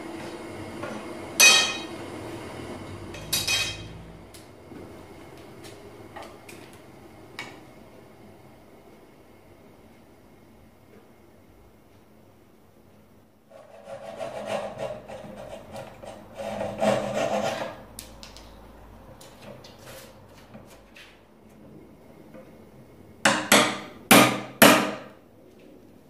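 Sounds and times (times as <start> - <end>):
chair scraping on wooden floor: 13.5 - 17.9, 19.4 - 21.2.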